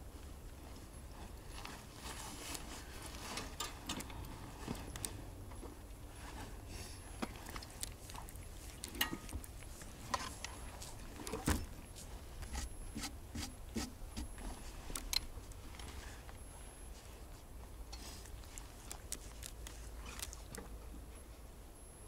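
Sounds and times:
soft clicks and rustles: 14.3s - 21.5s.

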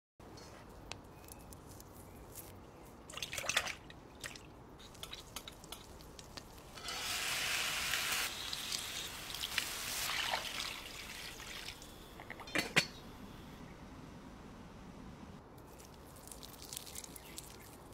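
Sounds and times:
liquid pouring into wok: 7.6s - 11.8s
metallic lid clank: 12.2s - 13.0s
wet squelching of raw meat: 15.7s - 17.9s.

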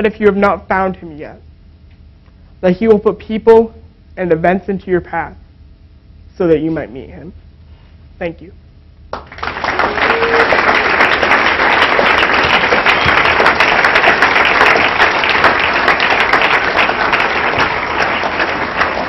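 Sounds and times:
crowd applauding: 9.1s - 19.0s.

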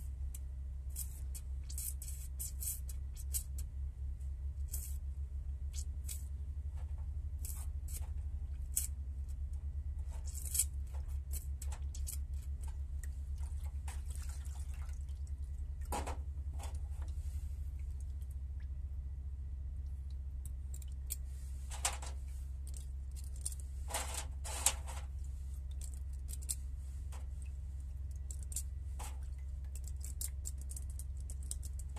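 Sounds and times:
steady low hum: 0.0s - 31.9s
fluid splashing and dripping: 12.9s - 15.9s, 27.3s - 31.6s
metal parts clicking: 20.4s - 25.1s, 25.7s - 27.2s, 28.1s - 31.9s.

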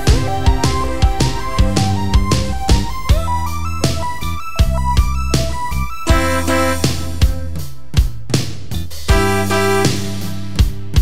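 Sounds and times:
sustained pitched chords: 0.0s - 7.6s
bass drum and snare hits: 0.0s - 11.0s.

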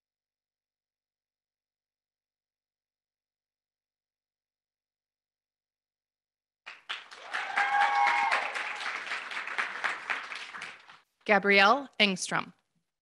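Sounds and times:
small group clapping: 6.7s - 11.1s
person cheering: 7.2s - 9.0s.

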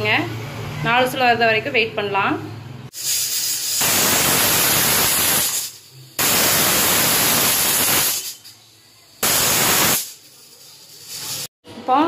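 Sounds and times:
pressure cooker whistling steam: 2.9s - 11.5s.

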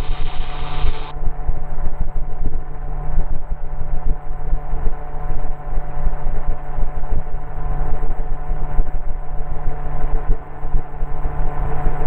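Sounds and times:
aircraft engine and propeller: 0.0s - 1.1s.

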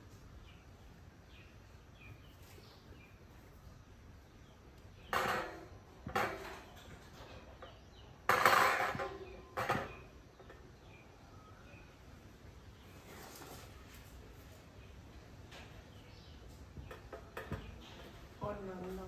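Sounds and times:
hard objects knocking: 16.8s - 18.6s.

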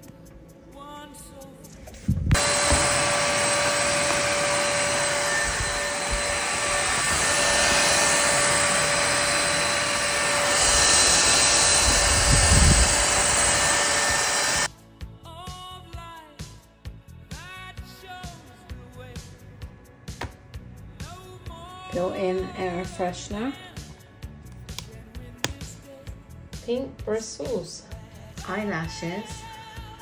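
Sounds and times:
low rumbling of vacuum head: 2.1s - 14.7s
stick vacuum running: 2.3s - 14.7s.

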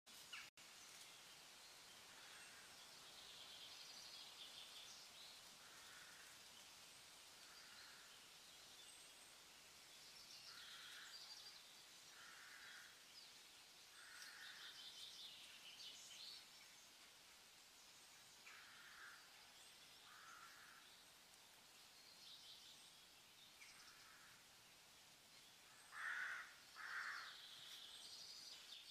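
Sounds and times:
steady hiss: 0.1s - 28.9s
birds chirping and trilling: 10.0s - 17.1s, 17.8s - 21.2s, 25.3s - 28.9s.

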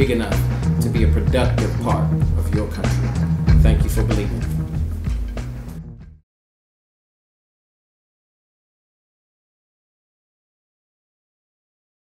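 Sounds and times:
low background music notes: 0.0s - 6.2s.

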